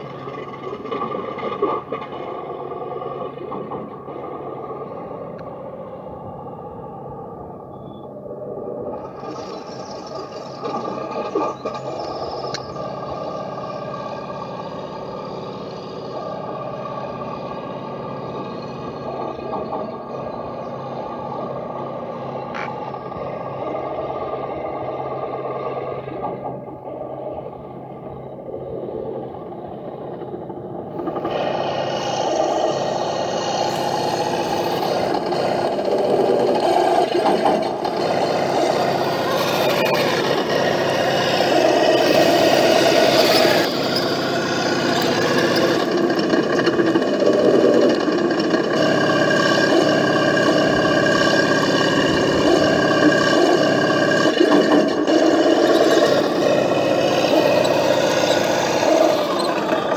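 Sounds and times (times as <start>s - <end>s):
toy tank motor whirring: 0.0s - 59.9s
tracks scraping over dirt: 29.1s - 59.9s.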